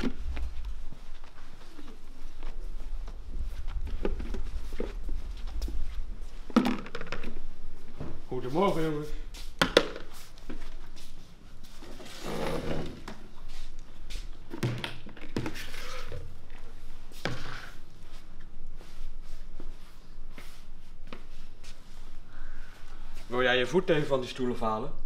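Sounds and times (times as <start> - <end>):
plastic basins knocking on wood: 6.5 - 7.3.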